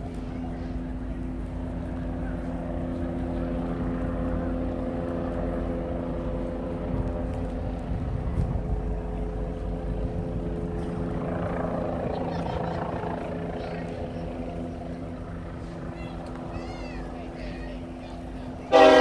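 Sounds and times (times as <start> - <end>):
locomotive horn chord: 18.7 - 19.0.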